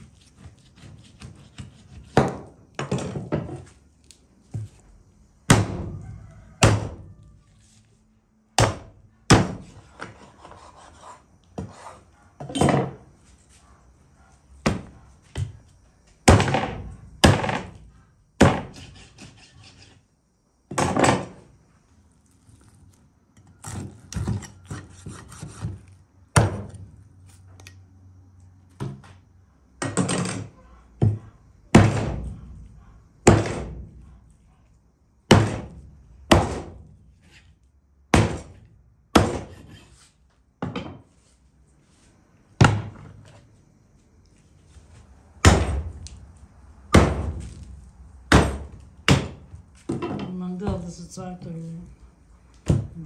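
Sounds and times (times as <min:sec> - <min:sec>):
rubbing and scraping on board: 0:00.0 - 0:02.5, 0:09.6 - 0:12.1, 0:18.7 - 0:20.0.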